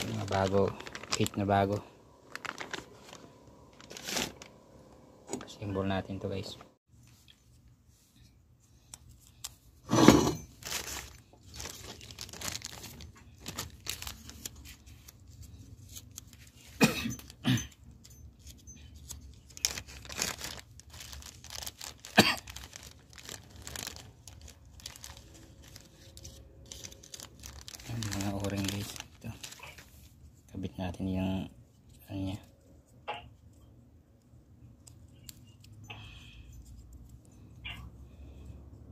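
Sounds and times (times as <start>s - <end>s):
plastic bag crinkling: 0.0s - 4.6s, 10.5s - 15.2s, 19.0s - 30.1s.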